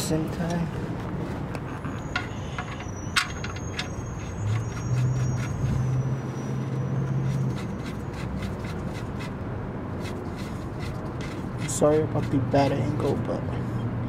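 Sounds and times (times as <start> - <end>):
metal clicks and scrapes: 1.3 - 9.4, 10.0 - 12.8.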